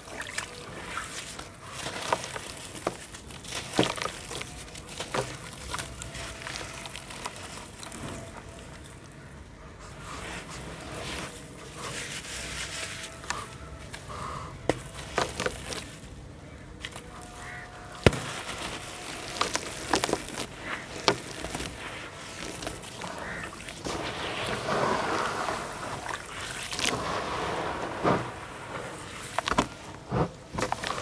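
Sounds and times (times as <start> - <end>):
gritty crumbling into water: 0.0 - 9.2, 10.7 - 31.0
water splashing: 0.0 - 14.1, 14.7 - 31.0.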